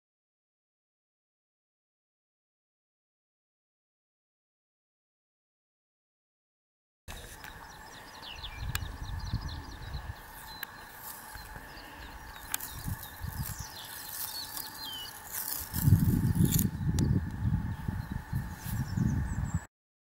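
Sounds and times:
faint bird chirps: 7.1s - 19.7s
wind gusting on microphone: 7.2s - 19.7s.

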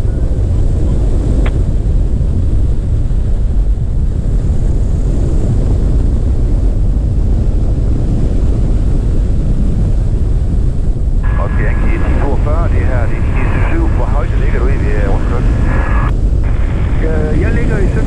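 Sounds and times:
wind noise: 0.0s - 18.0s
aircraft engine and propeller: 10.9s - 18.0s.

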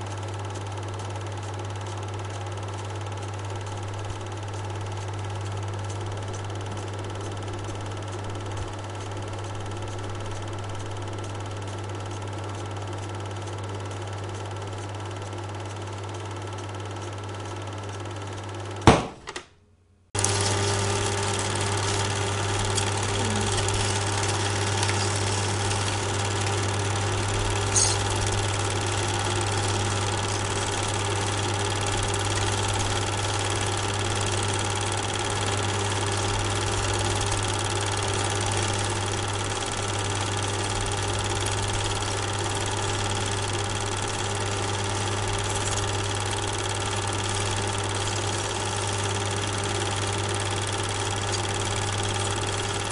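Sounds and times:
mechanical running hum: 0.0s - 19.2s, 20.2s - 52.9s
sharp click: 18.8s - 19.5s.

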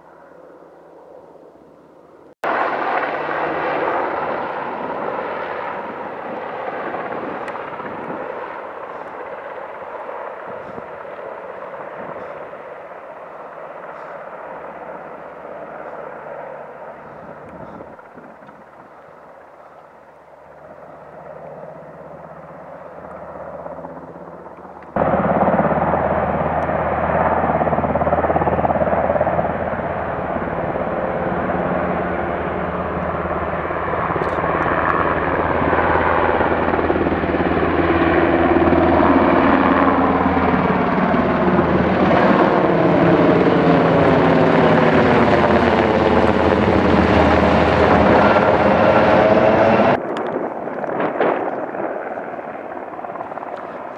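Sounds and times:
helicopter flying overhead: 0.0s - 53.9s.

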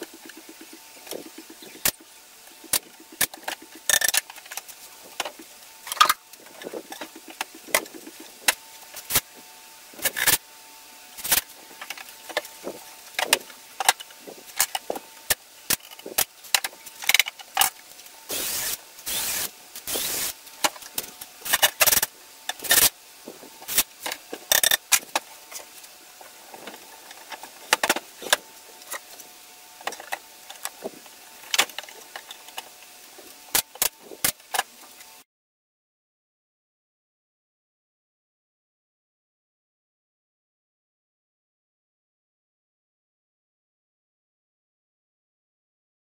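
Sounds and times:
power drill driving screws: 18.3s - 20.4s.

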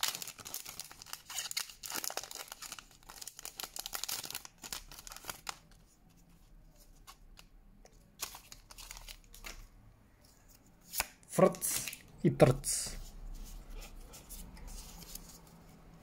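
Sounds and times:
foil wrapper crinkling and tearing: 0.0s - 5.6s
cards being handled: 6.8s - 9.6s, 10.2s - 12.1s, 13.0s - 15.7s.

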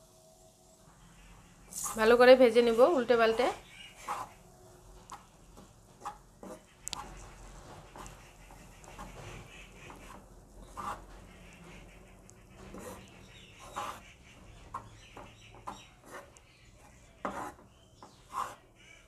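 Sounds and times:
spatula scraping pan: 3.9s - 4.4s, 6.0s - 18.7s.

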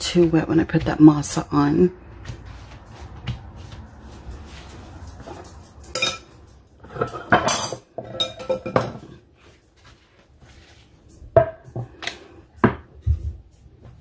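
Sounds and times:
kitchenware knocking and clinking: 5.2s - 9.2s, 11.3s - 12.0s.

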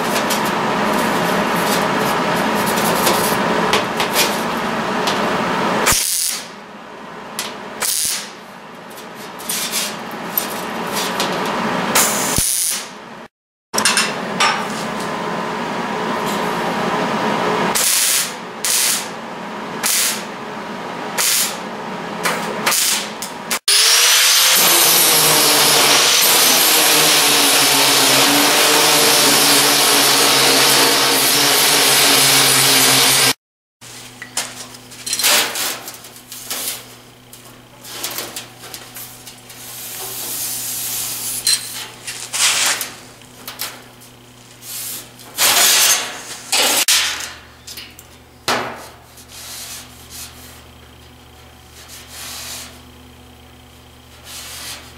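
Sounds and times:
angle grinder cutting steel: 23.6s - 33.4s.

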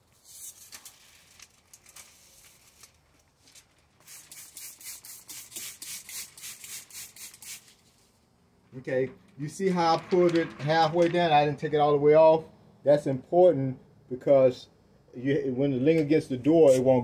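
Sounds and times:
film liner peeling rustle: 0.0s - 8.2s
spray bottle squirting: 4.0s - 7.8s.

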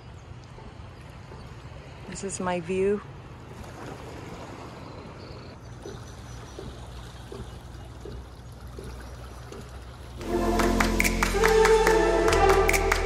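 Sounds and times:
water lapping against rocks: 3.1s - 10.2s.

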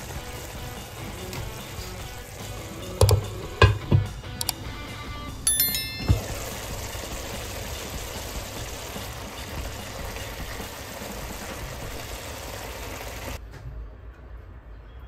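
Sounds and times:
sauce bubbling in frying pan: 0.0s - 2.6s, 6.2s - 13.4s.

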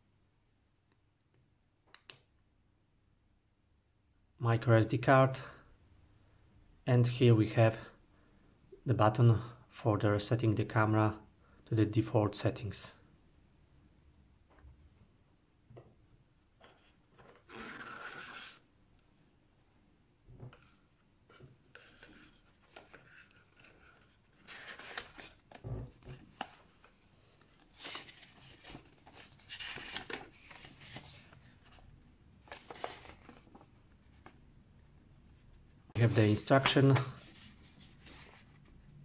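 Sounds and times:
paper rustling: 20.5s - 34.4s, 35.9s - 38.8s.

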